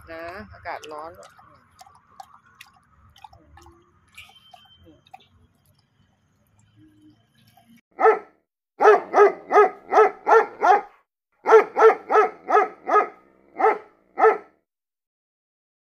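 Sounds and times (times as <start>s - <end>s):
dog barking high-pitched: 8.0s - 14.5s.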